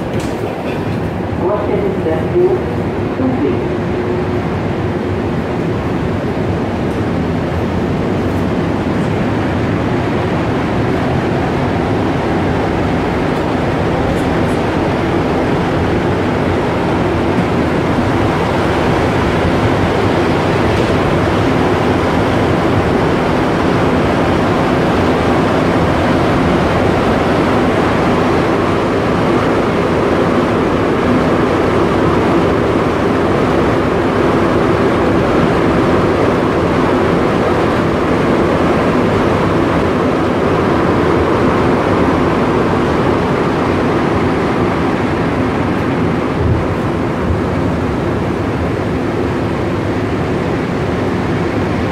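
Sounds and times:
train rumbling through tunnel: 0.0s - 51.9s.

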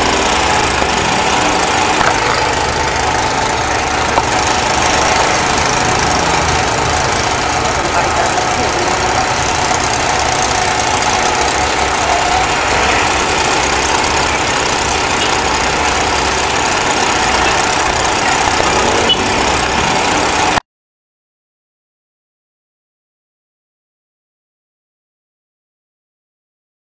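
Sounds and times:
fire truck engine running: 0.0s - 20.6s.

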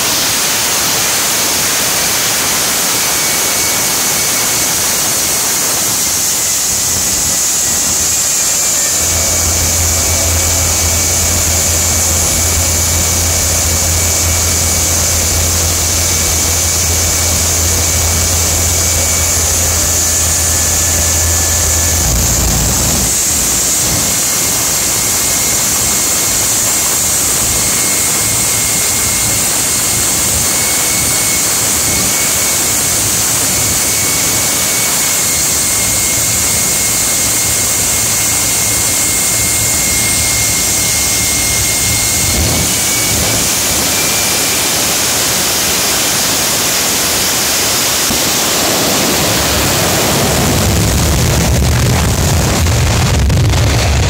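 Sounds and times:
high engine whine: 0.0s - 54.0s
jet engine roaring: 0.0s - 54.0s
deep rumble: 6.8s - 31.6s, 36.3s - 44.2s, 48.4s - 54.0s.

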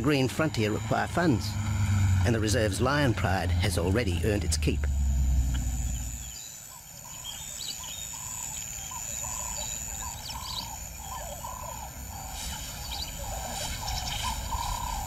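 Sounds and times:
steady outdoor hiss: 0.0s - 15.0s
faint high bird chirps: 5.8s - 15.0s.

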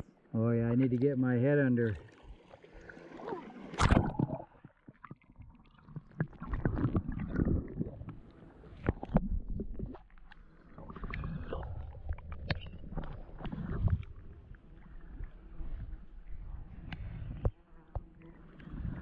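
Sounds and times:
underwater river gurgling: 0.0s - 19.0s
microphone splashing into water: 3.6s - 10.2s.

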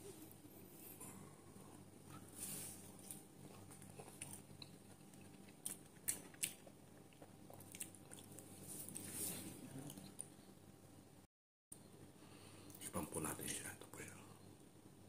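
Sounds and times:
low steady hum: 0.0s - 15.0s
crunchy chewing: 2.8s - 9.1s.

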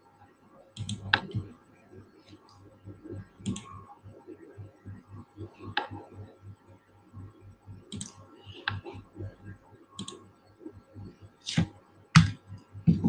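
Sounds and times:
faint low pulsing hum: 0.0s - 13.0s
computer mouse clicks: 0.8s - 1.4s, 3.4s - 3.8s, 7.9s - 8.9s, 10.0s - 10.2s.

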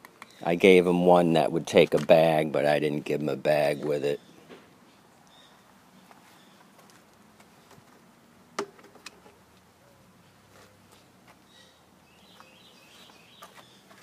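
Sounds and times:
faint bird chirps: 11.4s - 13.9s.

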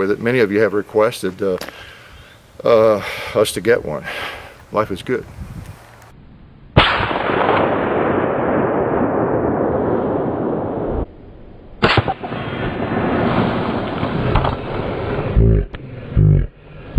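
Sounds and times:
suppressed rifle shots: 6.8s - 10.9s, 11.8s - 14.8s.

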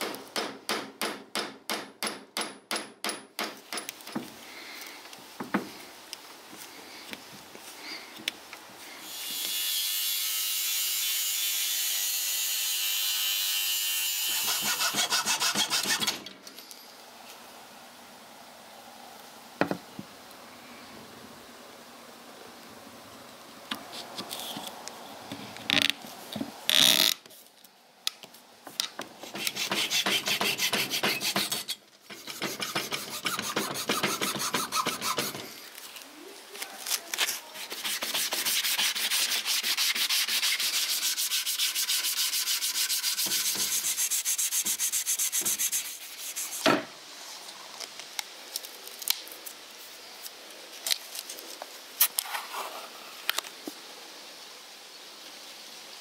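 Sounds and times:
hand sanding wood: 14.3s - 16.2s, 29.2s - 35.6s, 37.2s - 46.8s.

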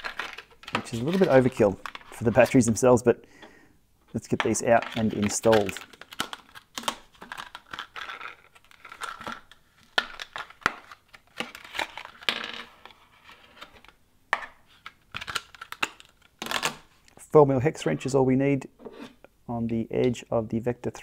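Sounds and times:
blister pack tearing and crinkling: 0.0s - 2.3s, 4.8s - 12.3s, 14.8s - 16.8s.

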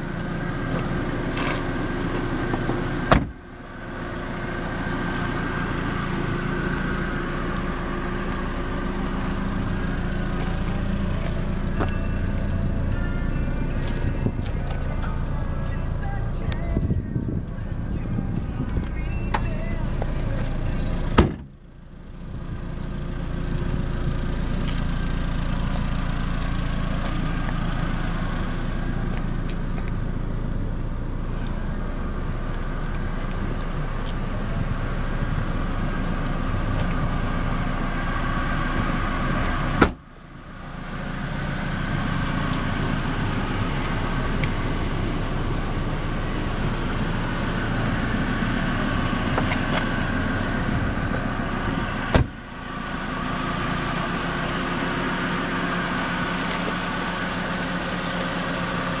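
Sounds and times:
car engine idling: 0.0s - 59.0s
car trunk and door slamming: 2.6s - 3.4s, 21.1s - 21.6s, 39.7s - 40.1s, 52.0s - 52.4s.

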